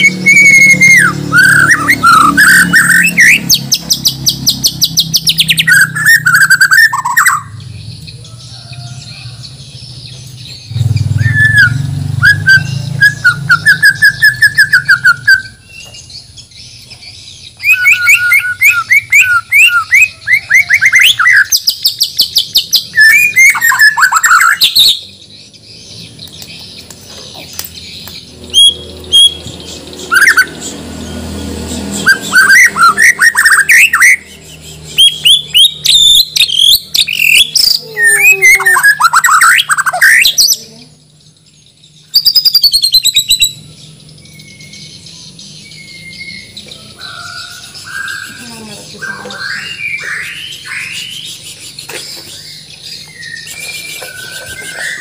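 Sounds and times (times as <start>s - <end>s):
songbird whistling: 0.0s - 7.6s, 10.6s - 25.1s, 27.5s - 30.8s, 31.9s - 40.5s, 41.4s - 55.0s.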